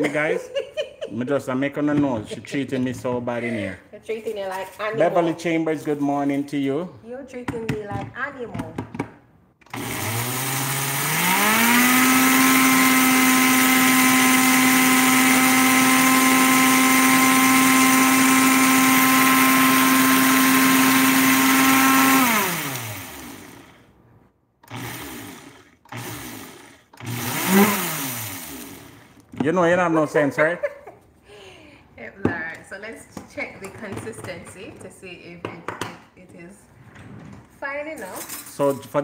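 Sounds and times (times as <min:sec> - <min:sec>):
blender grinding grain: 0:09.6 - 0:23.9, 0:24.6 - 0:29.3.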